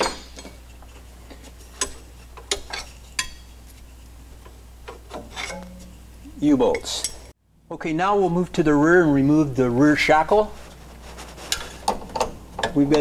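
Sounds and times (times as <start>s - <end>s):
loose steel hardware clinking: 0.0s - 0.8s, 1.6s - 3.6s, 4.4s - 6.0s, 6.6s - 7.3s
steady low hum: 0.0s - 13.0s.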